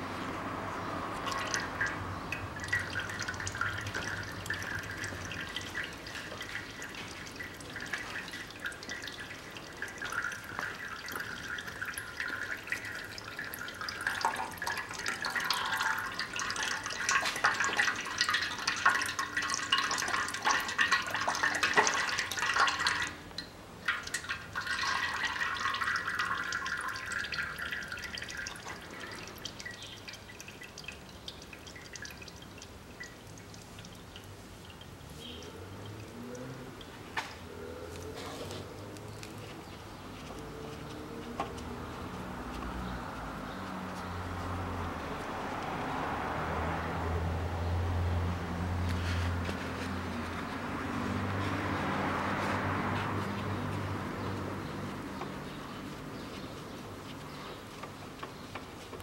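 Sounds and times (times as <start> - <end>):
oil pouring and dripping into basin: 0.1 - 59.0.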